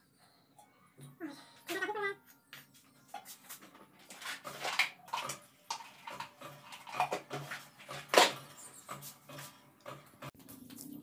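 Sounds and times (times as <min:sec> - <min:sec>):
plastic jars knocking and rattling: 0:04.1 - 0:10.4.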